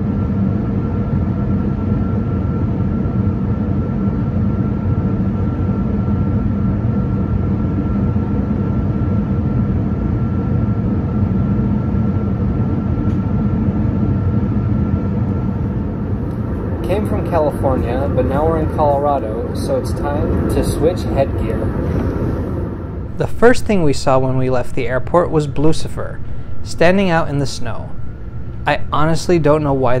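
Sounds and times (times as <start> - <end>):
thin high whine: 0.0 - 30.0
train rumbling: 15.6 - 25.0.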